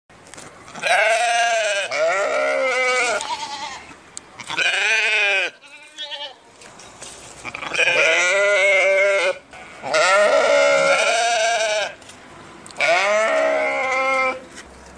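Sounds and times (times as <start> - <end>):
sheep bleating: 0.8 - 6.4, 7.4 - 12.0, 12.8 - 14.4.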